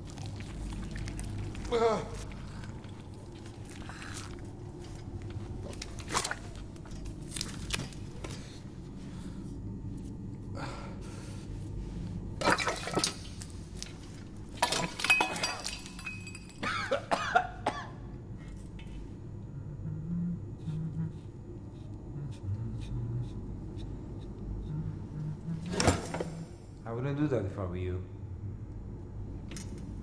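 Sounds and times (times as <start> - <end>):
low steady hum: 0.0 - 30.0
man coughing and gagging: 16.6 - 18.0.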